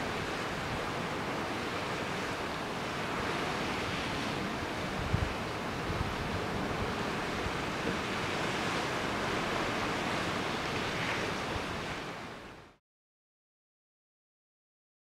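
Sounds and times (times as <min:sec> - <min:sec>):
waves washing: 0:00.0 - 0:12.8
wind: 0:00.0 - 0:12.8.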